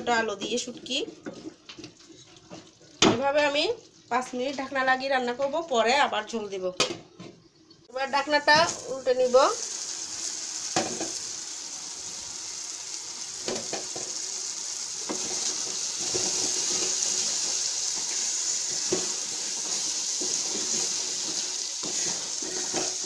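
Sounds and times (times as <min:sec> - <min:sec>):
food sizzling in a pot: 0:07.9 - 0:23.0.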